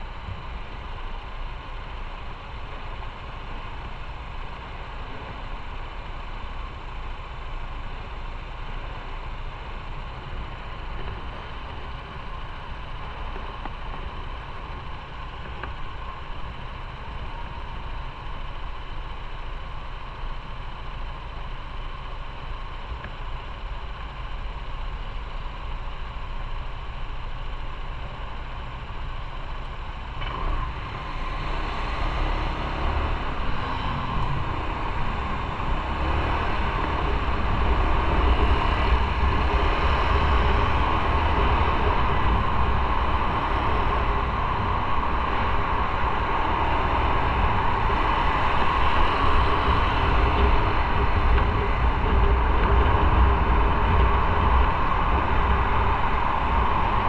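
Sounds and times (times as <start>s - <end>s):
motorcycle engine: 0.0s - 57.0s
wind noise: 30.4s - 57.0s.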